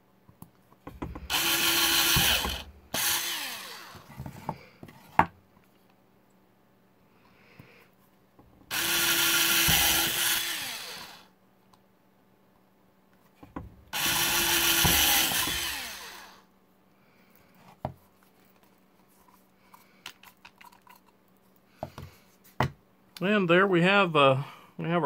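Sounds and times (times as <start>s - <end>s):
power drill drilling into plastic: 1.3s - 4.1s, 8.7s - 11.3s, 14.0s - 16.4s.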